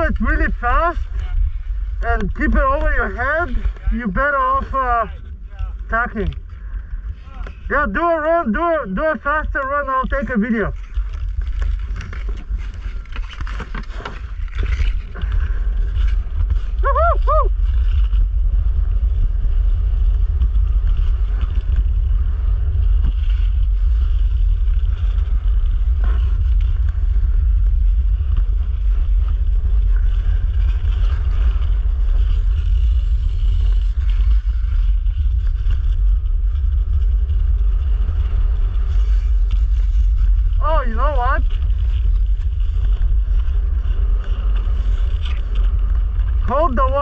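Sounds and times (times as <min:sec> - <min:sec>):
wind buffeting microphone: 0:00.0 - 0:47.0
skate blades on ice: 0:22.6 - 0:47.0.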